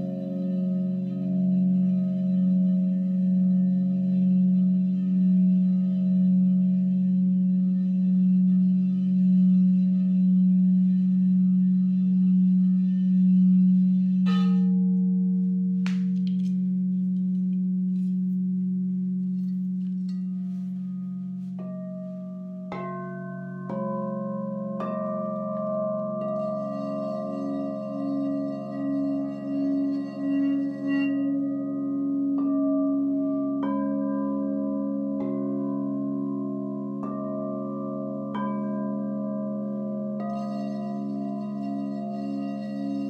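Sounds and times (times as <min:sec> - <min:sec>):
low singing bowl tone: 0:00.0 - 0:43.0
singing bowls struck: 0:19.3 - 0:43.0.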